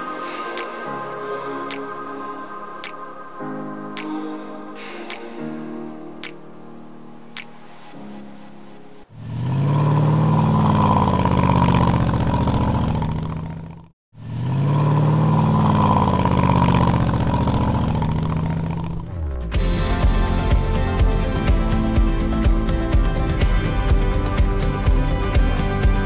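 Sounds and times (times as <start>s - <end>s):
vehicle engine revving: 9.1s - 20.4s.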